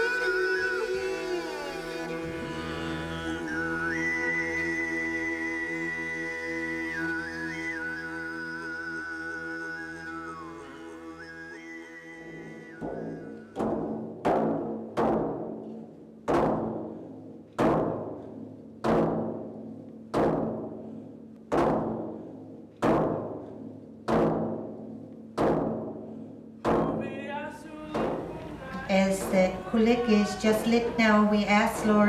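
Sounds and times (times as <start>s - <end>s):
drum beats ringing: 12.8s - 27.3s, 27.9s - 32.0s.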